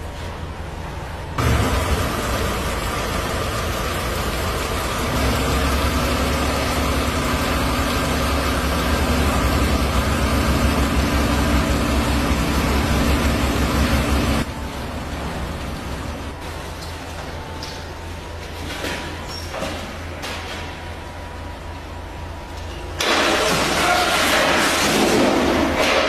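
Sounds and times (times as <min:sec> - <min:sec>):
small petrol engine running: 0:01.4 - 0:14.5.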